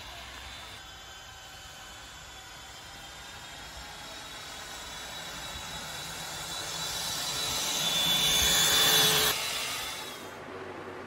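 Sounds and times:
scooter motor whine: 3.8s - 10.4s.

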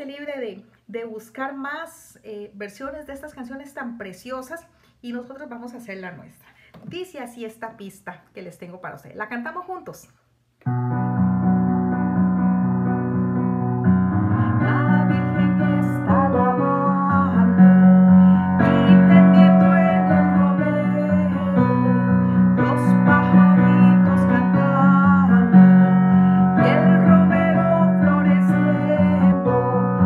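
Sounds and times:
instrumental christmas carol backing: 10.7s - 30.0s.

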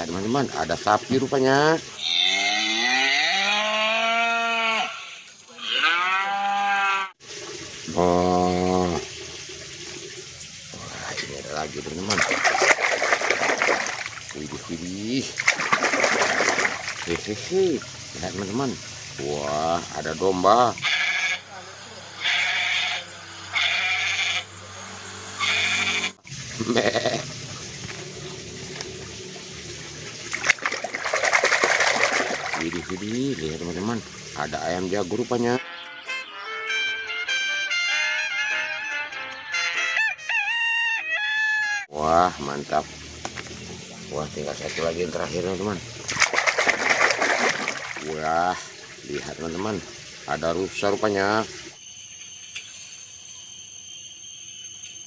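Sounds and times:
cattle mooing: 2.0s - 7.2s, 20.9s - 24.5s, 25.4s - 27.3s
water sloshing in a basin: 7.2s - 20.9s, 26.2s - 35.4s, 41.9s - 51.8s
goat bleating: 20.8s - 24.5s, 25.4s - 27.3s.

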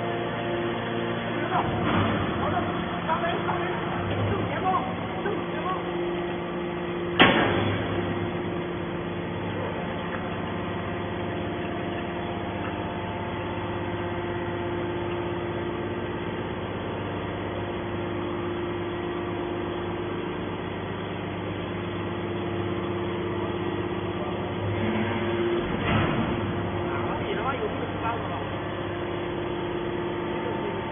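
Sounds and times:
hydraulic power unit hum: 0.0s - 30.9s
sharp bang: 7.2s - 8.1s.

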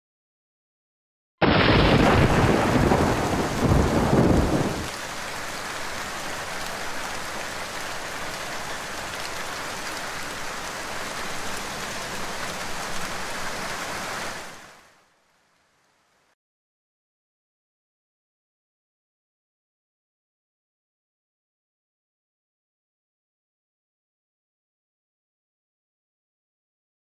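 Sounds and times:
low rumble of thunder: 1.4s - 4.9s
heavy rain falling: 1.4s - 16.4s.

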